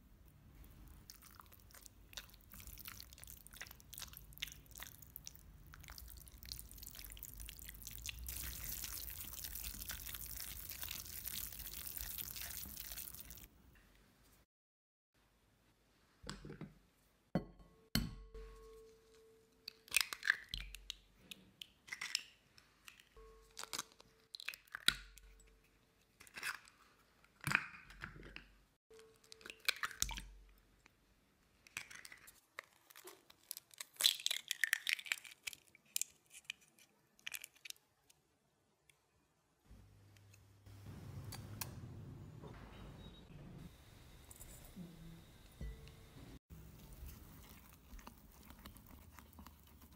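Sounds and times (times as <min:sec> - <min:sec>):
eggshells crunching and crackling: 0:01.0 - 0:13.5, 0:31.7 - 0:37.8, 0:46.6 - 0:49.9.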